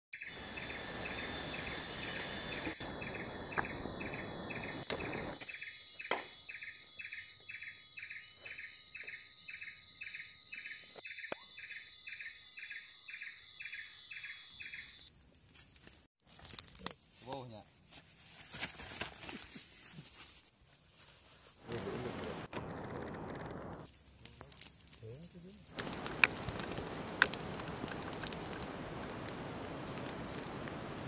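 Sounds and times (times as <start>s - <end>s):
insect chirp: 0.2s - 15.1s, 25.7s - 31.0s
insect chorus drone: 0.2s - 15.1s, 25.8s - 31.0s.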